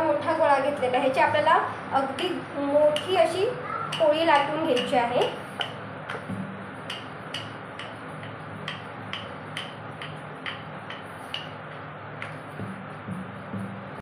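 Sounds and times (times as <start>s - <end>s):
steady low hum: 0.0s - 14.0s
rolling pin ticking on wooden board: 6.9s - 11.6s.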